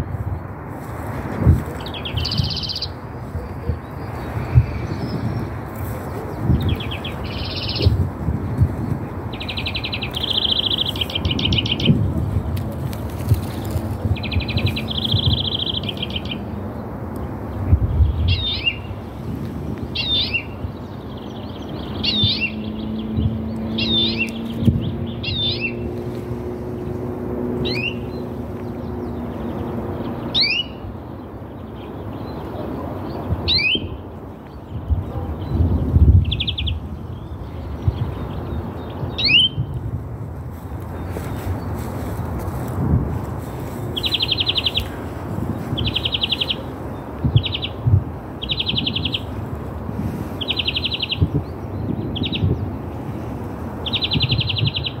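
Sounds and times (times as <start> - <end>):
buzzy rattling bird calls: 9.3 - 12.0.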